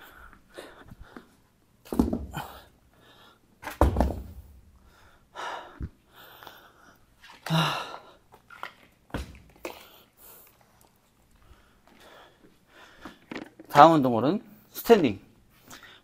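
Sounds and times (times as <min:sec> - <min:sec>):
plastic bottle knocks and click: 0:03.7 - 0:04.4.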